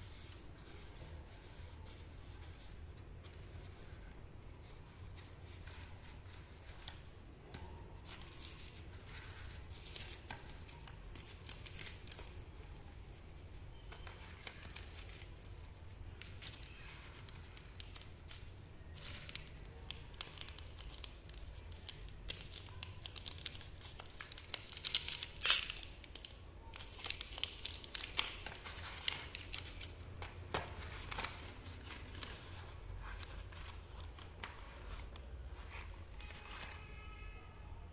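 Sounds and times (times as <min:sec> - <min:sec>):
plastic wrappers crinkling: 0:08.0 - 0:36.9.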